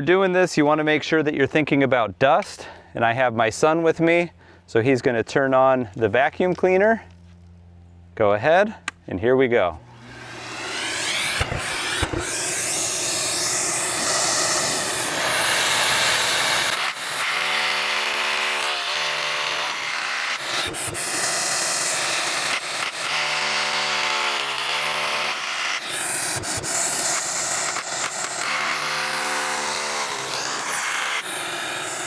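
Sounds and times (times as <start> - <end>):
vacuum running: 9.8 - 17.7
rotary hammer drilling concrete: 10.0 - 32.0.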